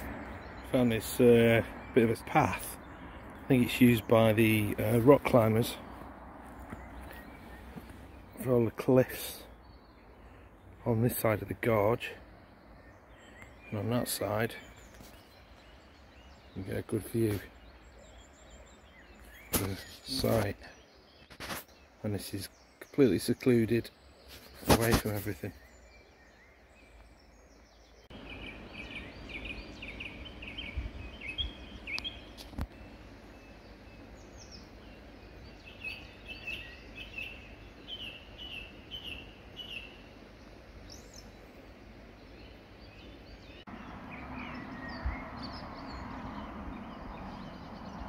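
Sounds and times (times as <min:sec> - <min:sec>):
songbirds chirping: 0:00.0 - 0:48.0
footsteps rustling on woodland path: 0:03.4 - 0:08.5, 0:14.2 - 0:16.3, 0:19.0 - 0:21.8, 0:24.2 - 0:25.8.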